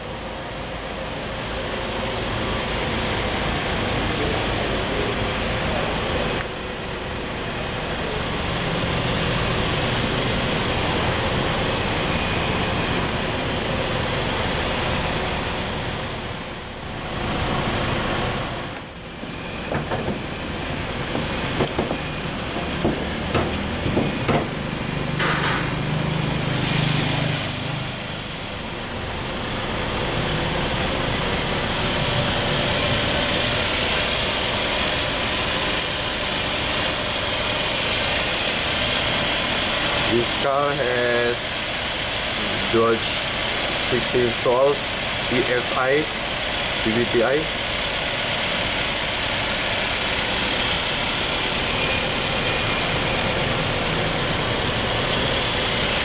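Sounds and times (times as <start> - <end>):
car engine idling: 0.0 - 15.0, 16.8 - 56.0
sharp clicks and knocks: 21.1 - 24.5.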